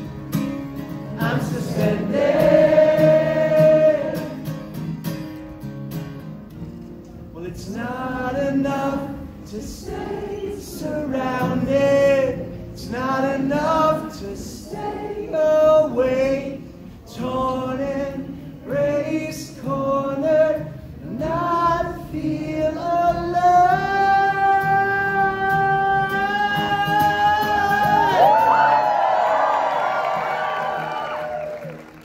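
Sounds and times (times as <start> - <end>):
strummed acoustic guitar: 0.0 - 28.3
crowd singing along: 0.8 - 4.8, 7.6 - 28.6.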